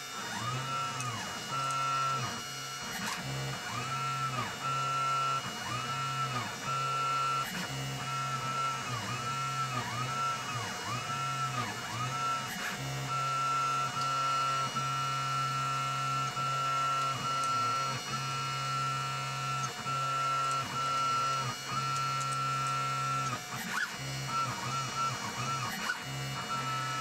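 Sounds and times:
stepper motors whining: 0:00.0 - 0:27.0.

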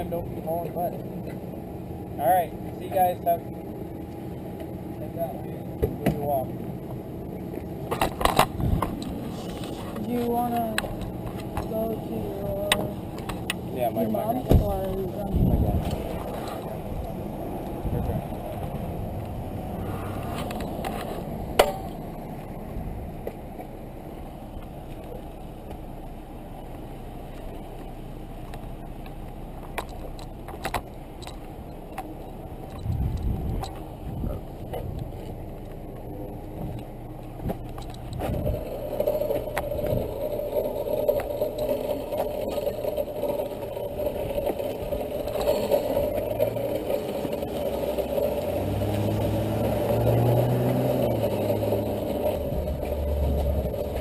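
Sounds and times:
vehicle engine running: 0:00.0 - 0:54.0
mini bike clacking: 0:07.6 - 0:22.5, 0:23.1 - 0:54.0
clicks and rattles: 0:28.4 - 0:33.9, 0:36.6 - 0:49.1.

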